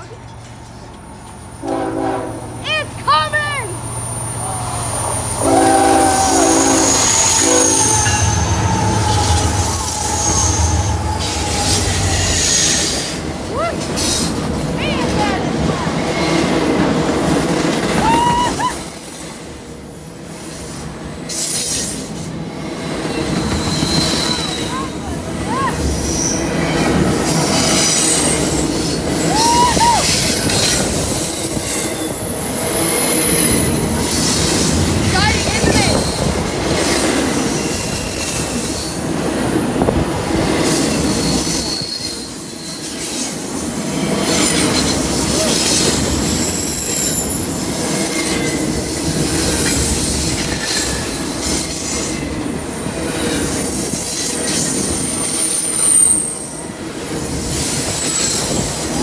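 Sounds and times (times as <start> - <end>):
train air horn blasts: 1.6 - 2.6, 5.4 - 9.9
train wheel squeal: 4.0 - 14.3, 20.5 - 59.0
high-pitched wheel squeal: 5.2 - 13.1, 53.7 - 59.0.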